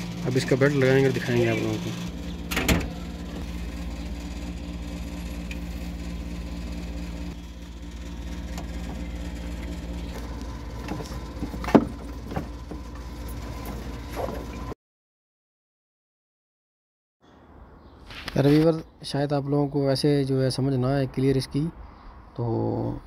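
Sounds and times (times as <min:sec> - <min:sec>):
low engine-like hum: 0:00.0 - 0:14.8.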